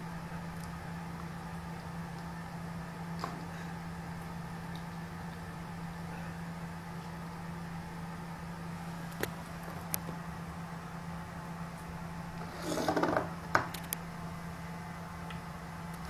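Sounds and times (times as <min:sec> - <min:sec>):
steady low hum: 0:00.0 - 0:16.0
bowl scraping rustle: 0:12.4 - 0:13.3.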